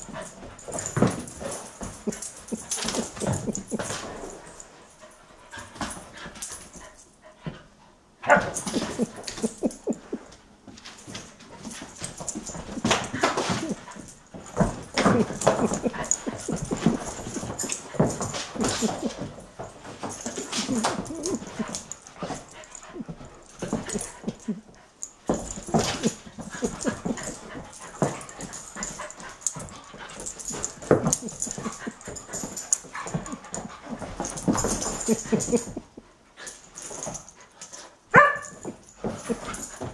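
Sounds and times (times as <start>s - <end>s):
dogs play-fighting vocalizing: 0.0s - 7.0s, 8.2s - 39.9s.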